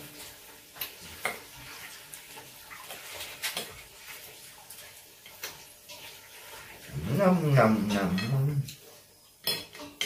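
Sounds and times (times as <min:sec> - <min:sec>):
cutlery scraping on ceramic plate: 0:07.8 - 0:08.8.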